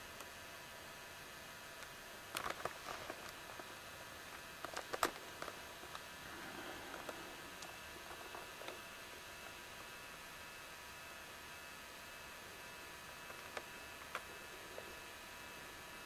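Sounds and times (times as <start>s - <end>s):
electrical hum with thin tones: 0.0s - 16.0s
low hiss: 0.0s - 16.0s.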